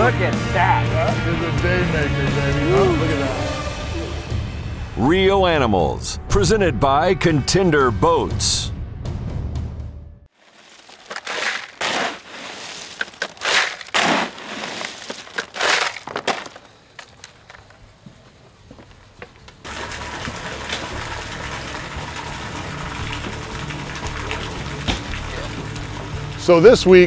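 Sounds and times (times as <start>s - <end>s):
splashing water: 10.4s - 16.0s, 19.6s - 27.0s
ice crashing into steel wheelbarrow: 10.4s - 17.1s.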